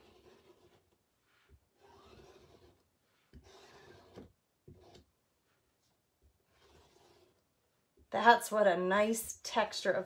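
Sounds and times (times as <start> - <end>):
squeegee scraping paste on mesh: 0.0 - 5.1.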